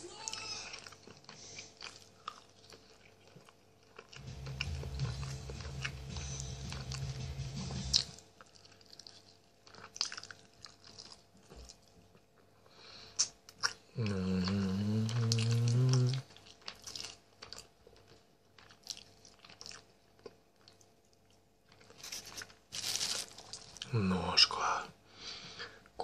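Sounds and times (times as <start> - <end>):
man chewing and lip smacking: 0.7 - 22.6
low hummed voice: 14.0 - 16.3.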